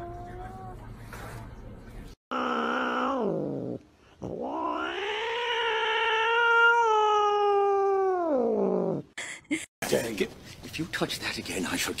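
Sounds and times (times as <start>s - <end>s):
cat yowling: 2.3s - 9.0s.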